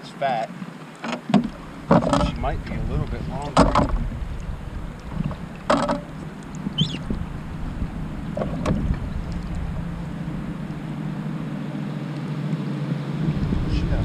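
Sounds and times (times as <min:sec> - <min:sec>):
wind rumbling on microphone: 0:00.6 - 0:14.0
short high chirp: 0:06.8 - 0:07.0.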